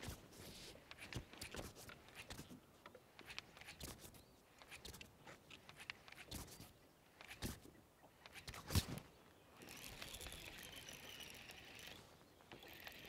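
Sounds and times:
fishing reel whirring: 9.6 - 13.0.

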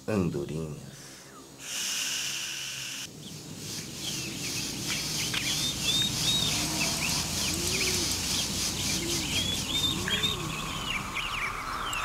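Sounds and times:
birds chirping: 0.0 - 1.7, 2.3 - 12.0
high insect buzz: 1.4 - 10.9.

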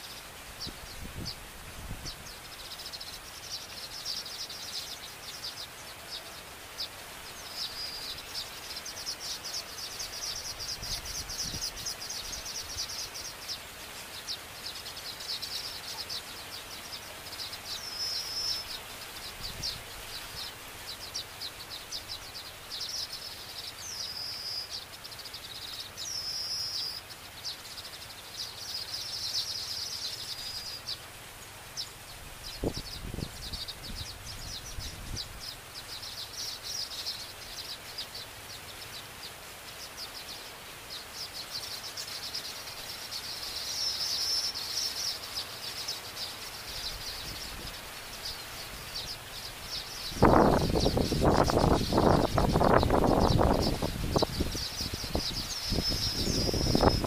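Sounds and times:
birds chattering: 0.0 - 57.0
high whistled bird notes: 50.0 - 57.0.

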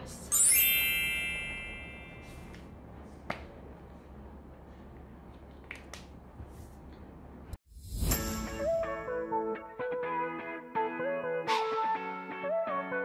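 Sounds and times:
bright chime: 0.3 - 2.4
low room hum: 1.7 - 7.6.

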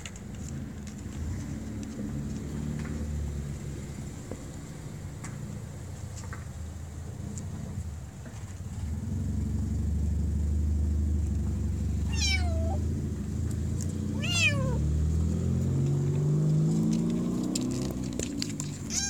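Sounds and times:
kitten meowing: 12.0 - 12.9, 14.1 - 14.9.

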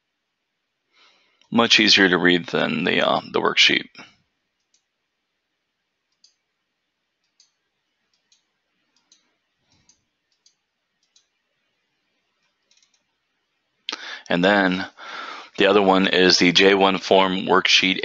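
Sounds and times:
computer mouse clicks: 4.6 - 4.9, 6.1 - 6.4, 7.2 - 11.4, 12.4 - 13.2.

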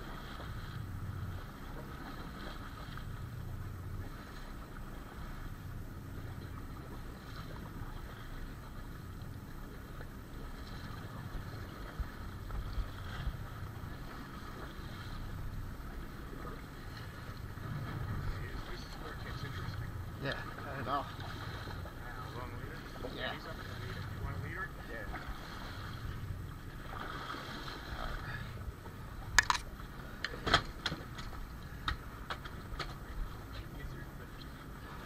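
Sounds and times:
water splashing around boat: 0.0 - 35.0
wind: 0.0 - 35.0
low rumble: 15.2 - 20.2.

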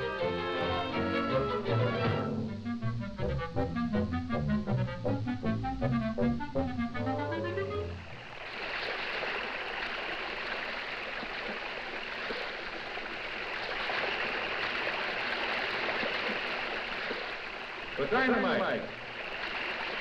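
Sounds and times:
cartoon music: 0.0 - 8.0
waterfall rushing: 8.1 - 20.0.

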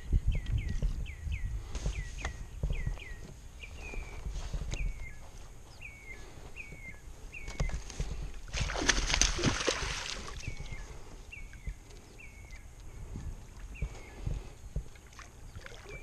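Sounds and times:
bird chirping: 0.0 - 8.3, 10.0 - 16.0
fish thrashing and splashing: 8.4 - 11.0.

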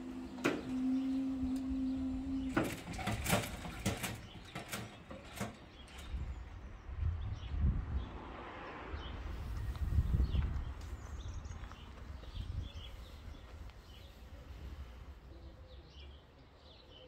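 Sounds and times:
barrier mechanism humming: 0.0 - 6.2
sharp mechanical clicks and knocks: 2.5 - 6.2.

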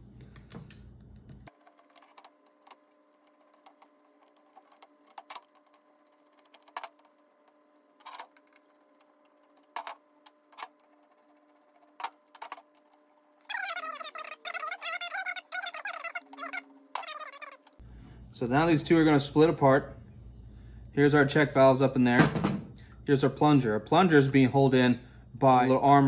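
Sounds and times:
steady low hum: 17.7 - 26.0.

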